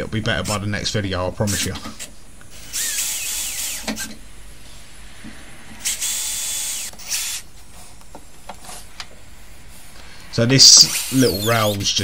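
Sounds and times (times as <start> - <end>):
drill driving screws: 1.5 - 4.2, 5.8 - 7.5, 10.6 - 12.0.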